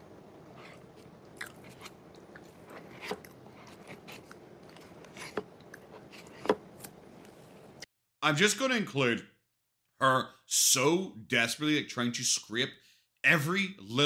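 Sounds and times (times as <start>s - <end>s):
person chewing food: 0.3s - 7.8s.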